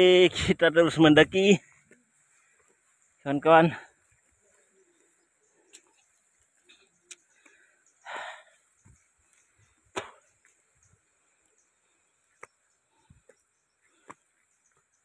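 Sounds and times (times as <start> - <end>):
footsteps on twigs and leaves: 1.0 - 7.6.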